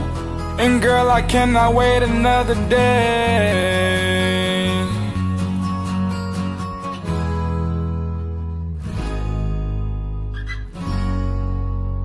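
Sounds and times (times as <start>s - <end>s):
strummed acoustic guitar chords: 0.0s - 12.0s.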